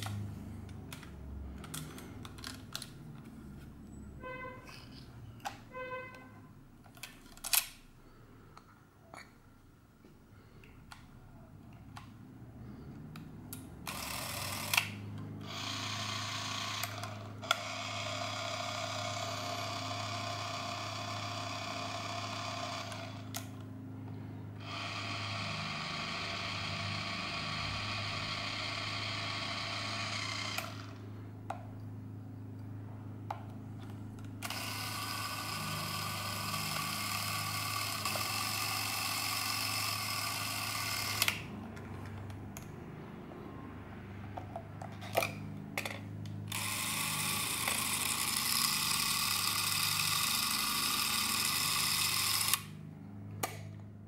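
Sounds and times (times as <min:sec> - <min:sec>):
movie camera whirring: 0:06.9 - 0:07.9, 0:11.9 - 0:32.5, 0:33.4 - 0:42.7, 0:44.4 - 0:53.9.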